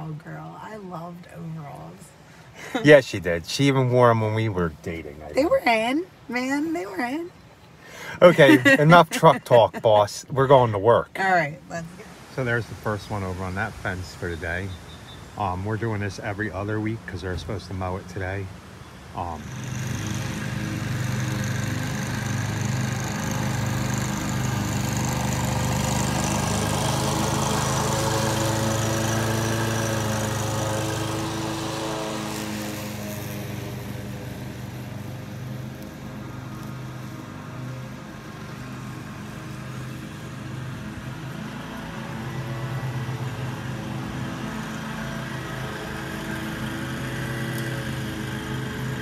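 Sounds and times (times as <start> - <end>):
lawn mower engine running: 7.8 - 11.1, 19.2 - 49.0.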